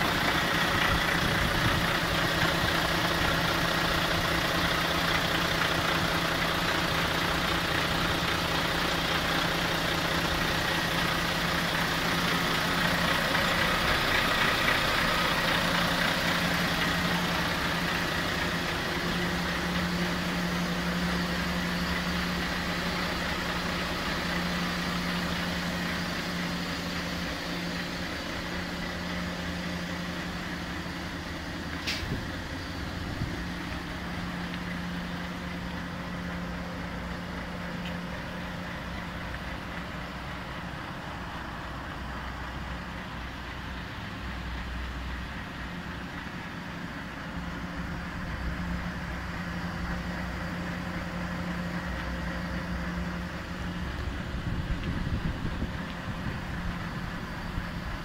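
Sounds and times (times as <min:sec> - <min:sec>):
diesel engine idling: 0:00.0 - 0:58.0
sharp click: 0:31.8 - 0:32.2.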